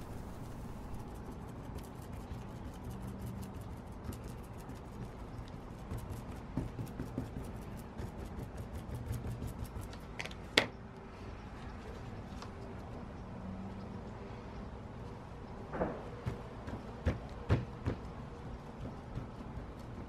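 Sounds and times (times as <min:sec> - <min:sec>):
paintbrush scratching on cloth: 0:00.0 - 0:10.0.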